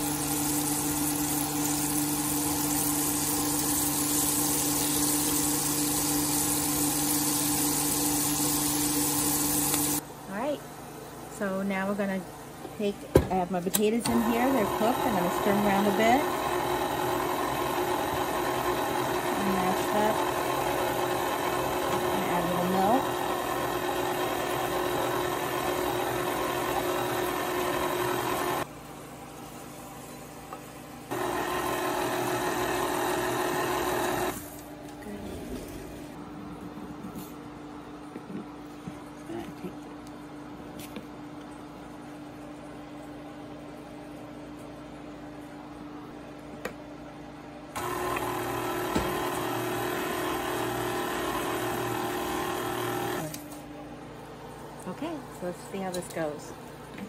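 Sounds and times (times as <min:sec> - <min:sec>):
stand mixer motor whining: 0:14.0 - 0:28.7, 0:31.1 - 0:34.5, 0:47.8 - 0:53.4.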